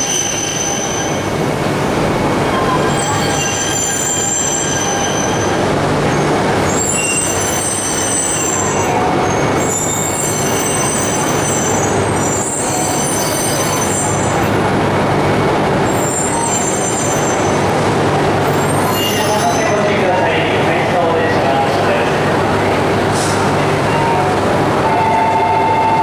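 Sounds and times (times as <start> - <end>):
high squeal: 0.0 - 1.3, 2.6 - 5.6, 6.7 - 14.4, 15.9 - 17.6, 18.6 - 19.8
train hum and rumbling hiss: 0.0 - 26.0.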